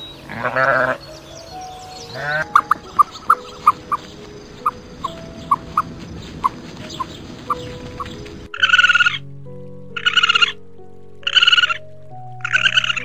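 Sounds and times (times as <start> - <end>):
soft background music: 0.0 - 13.0
sheep bleating: 0.3 - 1.0
ostrich chick peeping: 0.8 - 9.2.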